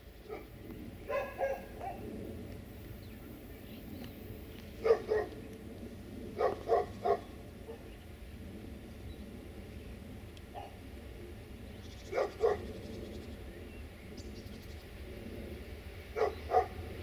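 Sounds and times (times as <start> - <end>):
low background rumble: 0.0 - 17.0
dog barking: 0.3 - 0.5, 1.1 - 2.0, 4.8 - 5.4, 6.4 - 7.9, 10.6 - 10.8, 12.1 - 12.7, 16.2 - 16.8.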